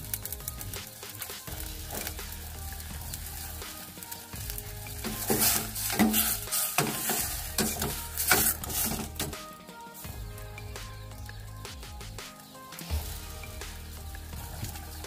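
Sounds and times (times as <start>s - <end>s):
livers sizzling in a pot: 0.0s - 15.0s
ladle scraping and knocking on pot: 5.0s - 9.4s.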